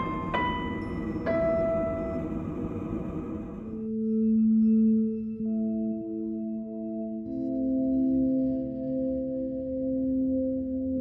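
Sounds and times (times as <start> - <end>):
bell-like notes ringing: 0.0 - 2.7.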